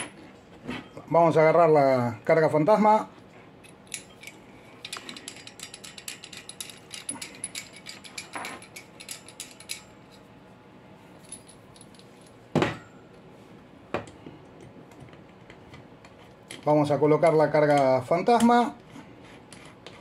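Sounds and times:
small metal parts clinking: 0:03.6 - 0:09.9, 0:11.2 - 0:12.3.

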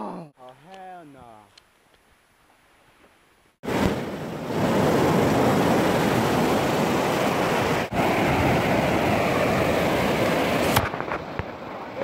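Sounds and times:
ocean surf washing onto beach: 0:03.6 - 0:12.0.

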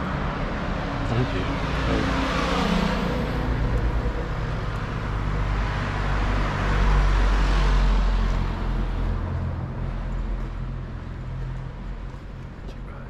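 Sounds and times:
vehicle passing by: 0:00.0 - 0:10.0.

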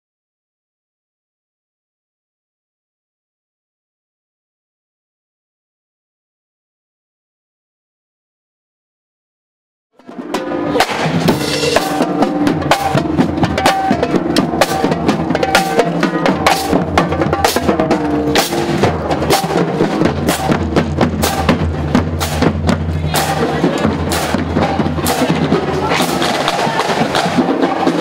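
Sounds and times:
marching drumline beat: 0:10.0 - 0:28.0.

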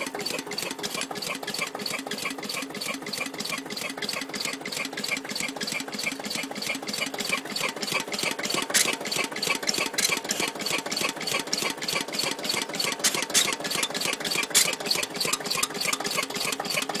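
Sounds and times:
diesel engine knocking: 0:00.0 - 0:17.0
oil pump arm squeaking: 0:00.0 - 0:17.0.

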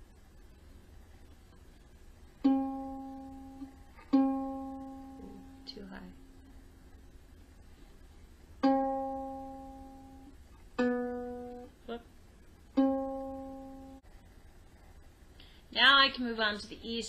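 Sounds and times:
ukulele string plucked: 0:02.4 - 0:05.6, 0:08.6 - 0:12.0, 0:12.7 - 0:14.0.

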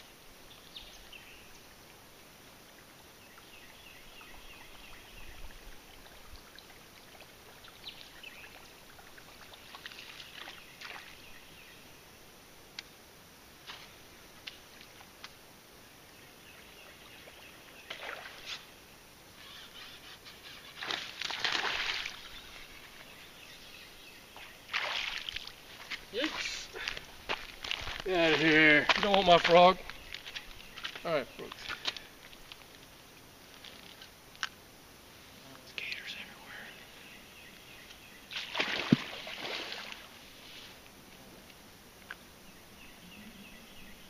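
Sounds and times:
birds chirping: 0:03.2 - 0:05.8, 0:15.8 - 0:33.0, 0:35.5 - 0:38.9, 0:42.0 - 0:44.0
alligator splashing through water: 0:09.3 - 0:11.3, 0:17.8 - 0:18.6, 0:20.8 - 0:23.0, 0:24.4 - 0:26.6, 0:38.3 - 0:40.1.

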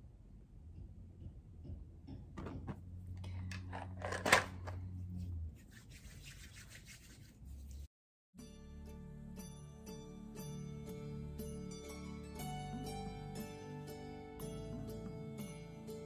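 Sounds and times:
hands rubbing and rustling: 0:05.1 - 0:07.9
soft background music: 0:08.4 - 0:16.0.

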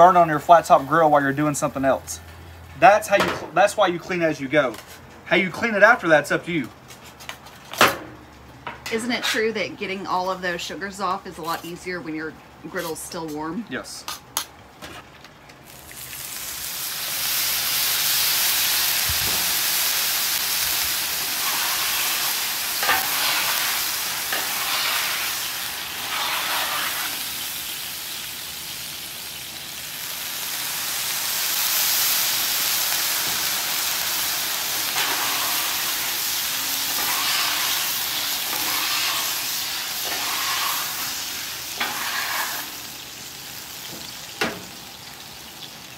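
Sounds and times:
water sizzling on hot griddle: 0:00.0 - 0:02.2, 0:15.6 - 0:45.9
metal scraper on griddle: 0:21.3 - 0:27.2, 0:34.9 - 0:36.0, 0:36.7 - 0:42.9.

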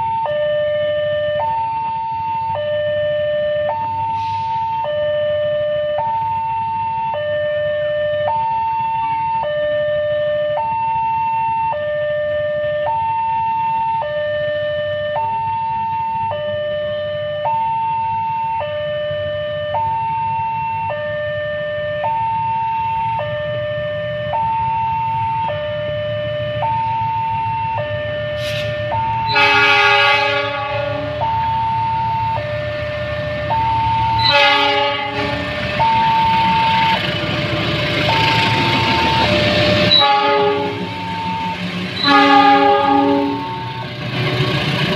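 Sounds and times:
two-tone warning alarm: 0:00.0 - 0:44.4
train rumble: 0:22.0 - 0:44.9
locomotive horn blasts: 0:28.4 - 0:31.4, 0:34.1 - 0:35.6, 0:38.5 - 0:43.9.

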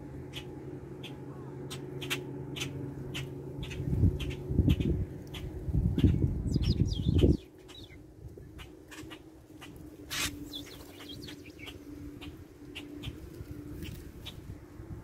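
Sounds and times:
faint low hum: 0:00.0 - 0:15.0
small birds chirping: 0:00.3 - 0:14.4
wind gust on microphone: 0:03.6 - 0:08.6.

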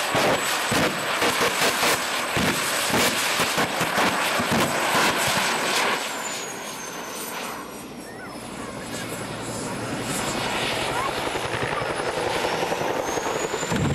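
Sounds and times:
jet engine roaring: 0:00.0 - 0:13.9.

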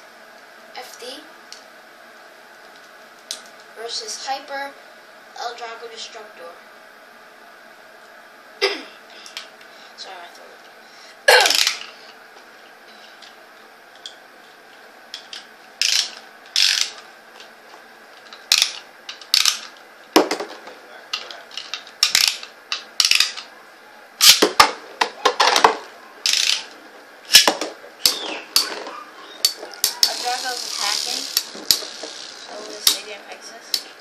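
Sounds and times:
ripcord launcher ratcheting zips: 0:11.4 - 0:11.9, 0:15.8 - 0:17.0, 0:18.5 - 0:19.7, 0:24.2 - 0:24.5, 0:26.2 - 0:26.7, 0:29.4 - 0:33.1.

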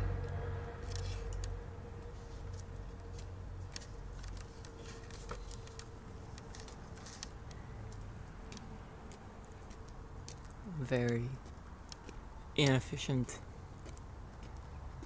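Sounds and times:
cat scuffling and scratching: 0:02.1 - 0:07.5.

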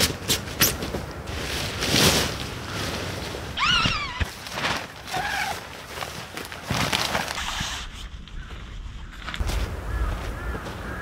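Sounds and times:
tent fabric rustling: 0:00.0 - 0:10.3
bird calling: 0:08.3 - 0:11.0.

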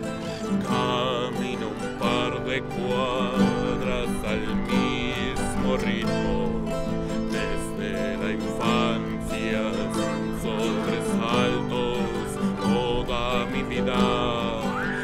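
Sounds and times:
acoustic guitar plucking: 0:00.0 - 0:15.0
mandolin playing: 0:00.0 - 0:15.0.

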